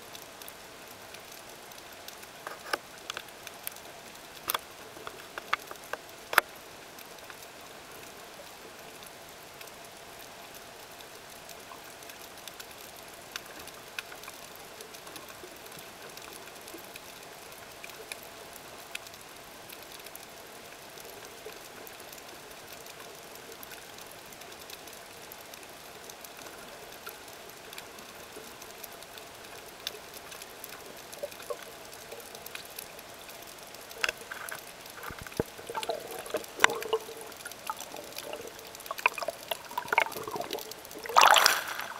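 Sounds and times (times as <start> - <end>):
underwater hiss: 34.9 - 41.9.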